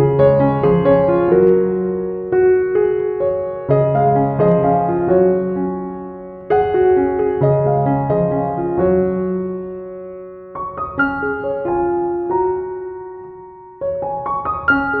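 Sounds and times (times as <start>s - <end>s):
soft piano music: 0.0s - 15.0s.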